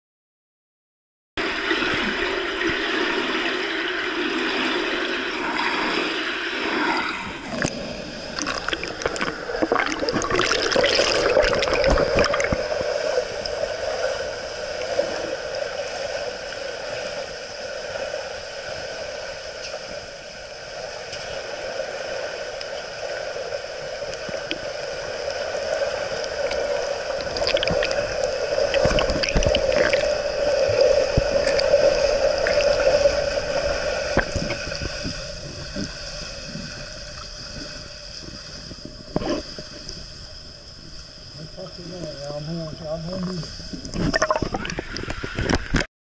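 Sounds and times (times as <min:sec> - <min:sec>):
swimmer splashes: 0:01.4 - 0:15.5
muffled underwater hum: 0:01.4 - 0:45.9
water lapping and gurgling: 0:01.4 - 0:45.9.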